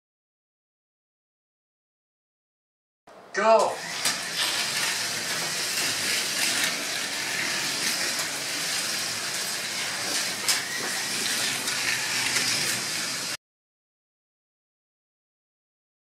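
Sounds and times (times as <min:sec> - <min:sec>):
slot car motors whirring: 0:03.6 - 0:13.4.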